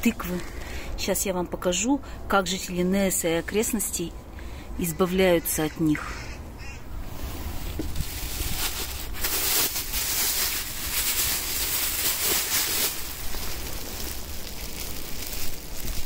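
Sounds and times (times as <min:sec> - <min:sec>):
plastic bag rustling: 0:07.0 - 0:16.0.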